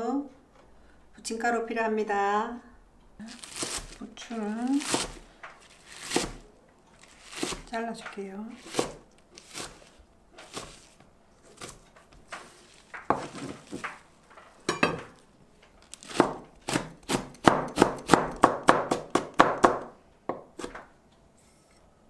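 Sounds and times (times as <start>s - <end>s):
knife chopping on plastic board: 4.6s - 6.4s, 7.0s - 7.7s, 8.6s - 14.0s, 15.9s - 20.8s.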